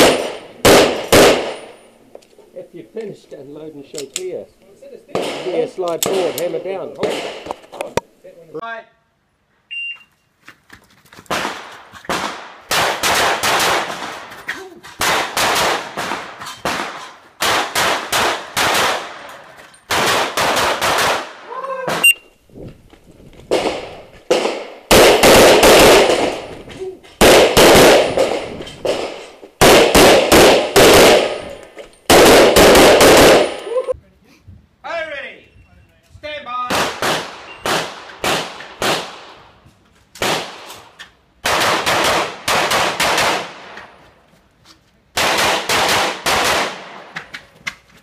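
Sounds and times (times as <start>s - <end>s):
pistol shots echoing: 0.0s - 1.8s, 5.1s - 7.6s, 11.3s - 14.3s, 15.0s - 19.3s, 19.9s - 22.1s, 23.5s - 33.7s, 36.7s - 39.4s, 41.4s - 43.8s, 45.2s - 47.1s
shot timer beep: 9.7s - 10.1s, 22.0s - 22.3s.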